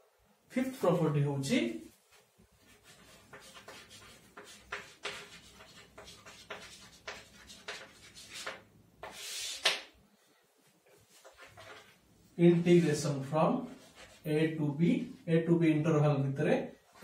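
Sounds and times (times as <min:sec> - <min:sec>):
chalk scratching on chalkboard: 0:02.6 - 0:09.9, 0:11.0 - 0:12.0, 0:12.6 - 0:14.3.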